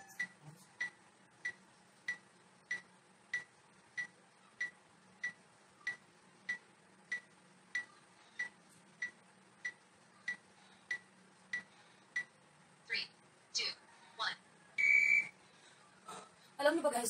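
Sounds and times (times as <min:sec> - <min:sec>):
timer beeps: 0:00.0 - 0:12.3, 0:14.8 - 0:15.3.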